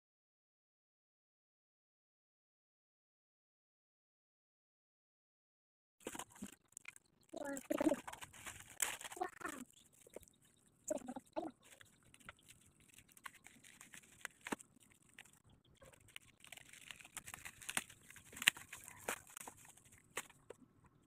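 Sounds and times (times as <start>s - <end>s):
bubble wrap crinkling: 6.0s - 20.6s
scissors snipping: 11.7s - 20.4s.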